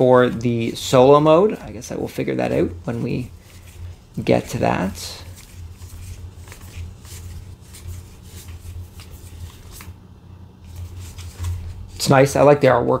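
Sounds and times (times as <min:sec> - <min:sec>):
low steady hum: 0:00.0 - 0:13.0
cards flicking and sliding: 0:05.2 - 0:10.0.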